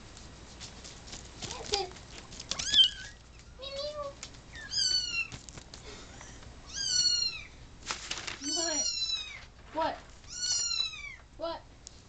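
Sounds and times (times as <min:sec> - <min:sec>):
kittens mewing: 0:02.6 - 0:05.4, 0:06.6 - 0:07.6, 0:08.4 - 0:09.4, 0:10.3 - 0:11.2.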